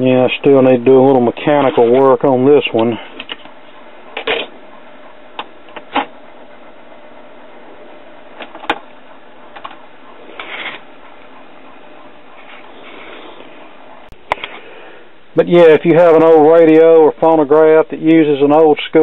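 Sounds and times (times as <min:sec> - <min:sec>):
turntable mechanical whir: 0:00.0 - 0:15.3
sharp clicks and knocks: 0:08.4 - 0:09.8.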